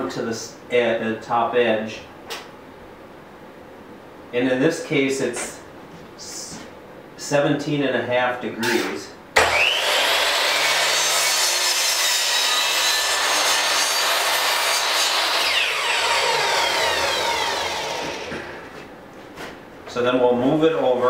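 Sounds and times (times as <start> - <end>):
saw blade cutting wood: 9.4 - 18.7
miter saw motor whining: 9.4 - 18.8.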